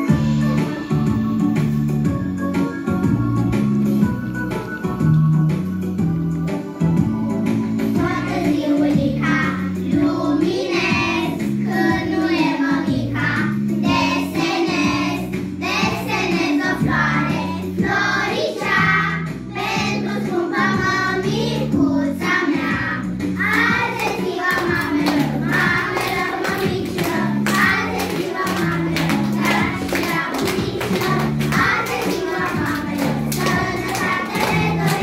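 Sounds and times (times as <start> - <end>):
instrumental backing track: 0.0 - 35.0
children singing: 8.0 - 35.0.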